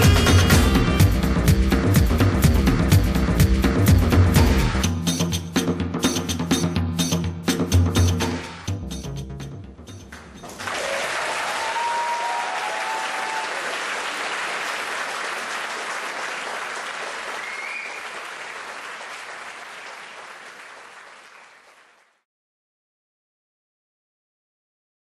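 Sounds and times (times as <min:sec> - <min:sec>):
music beats: 0:00.0 - 0:10.6
audience applauding: 0:10.4 - 0:22.2
audience calls: 0:10.5 - 0:21.8.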